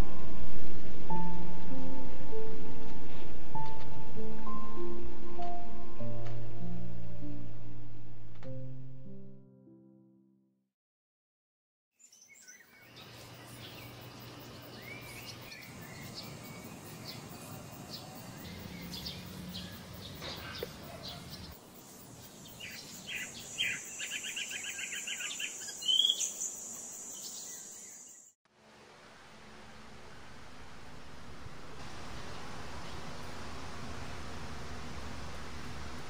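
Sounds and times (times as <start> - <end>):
steady high whine: 0.0 - 8.4, 28.7 - 36.0
birds chirping and calling: 12.2 - 21.6, 22.5 - 28.2.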